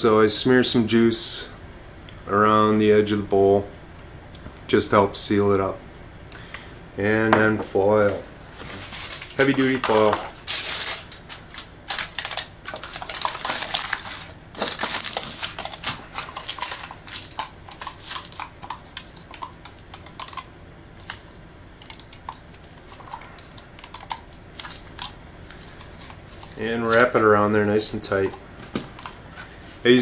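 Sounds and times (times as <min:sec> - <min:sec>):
aluminium foil crinkling: 0:08.7 - 0:27.2.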